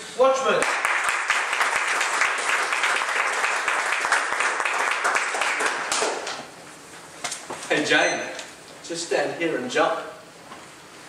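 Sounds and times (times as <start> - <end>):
audience applauding: 0.6 - 6.4.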